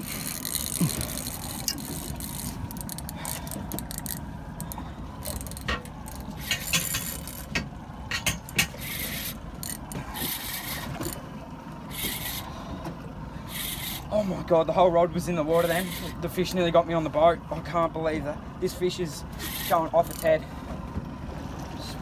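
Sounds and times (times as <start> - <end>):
fishing reel drag ticking: 0.0 - 7.5, 8.4 - 11.2, 11.9 - 12.5, 13.5 - 14.1, 15.5 - 16.3, 19.3 - 20.4
reel handle cranking: 0.0 - 12.5, 13.5 - 14.1, 15.5 - 16.4, 19.3 - 20.4
low steady rumble: 0.0 - 22.0.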